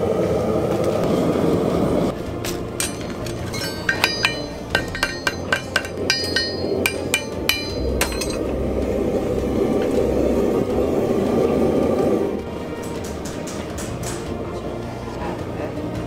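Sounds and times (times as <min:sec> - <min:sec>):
steady rushing noise: 0:00.0 - 0:15.0
hammer ringing on anvil: 0:02.4 - 0:08.5.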